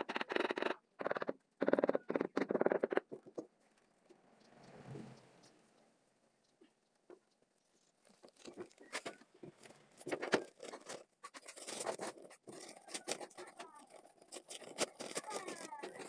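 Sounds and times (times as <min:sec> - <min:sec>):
trowel scraping tile mortar: 0:08.4 - 0:16.0.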